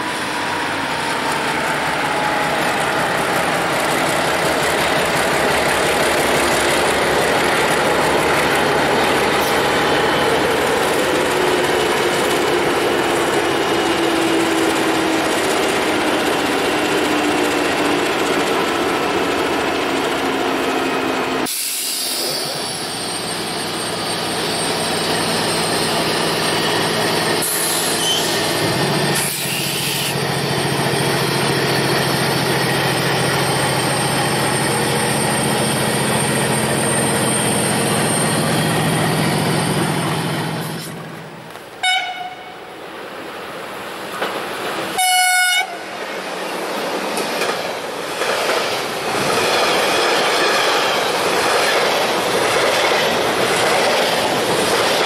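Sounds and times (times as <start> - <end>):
diesel locomotive engine drone: 0.0 - 55.0
locomotive horn blasts: 41.8 - 42.6, 45.0 - 45.8
train wheels clattering over rail joints: 46.8 - 55.0.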